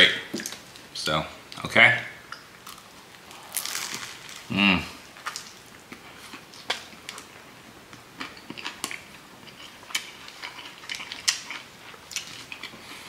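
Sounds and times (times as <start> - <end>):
crunchy chewing of toasted bread: 2.6 - 13.0.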